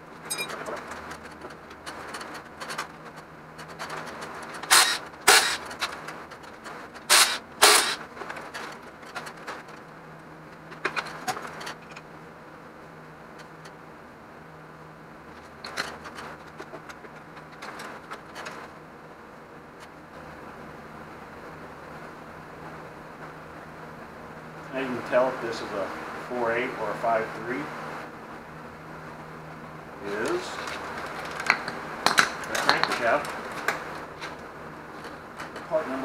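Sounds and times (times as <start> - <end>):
faint steady hum: 0.0 - 36.0
metal engine parts clanking: 0.2 - 9.8.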